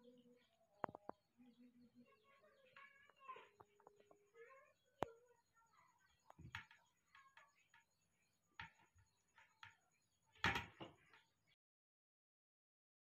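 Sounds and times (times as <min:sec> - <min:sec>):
faint knocks and rustles: 0:06.2 - 0:08.0.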